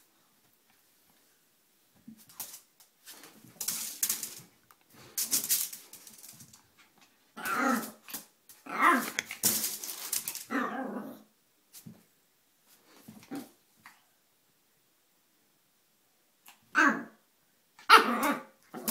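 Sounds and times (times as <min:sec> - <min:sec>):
noisy scuffles: 0:02.0 - 0:07.0
small dog growling and yapping: 0:07.4 - 0:09.2, 0:10.4 - 0:11.3, 0:16.7 - 0:17.2, 0:17.9 - 0:18.9.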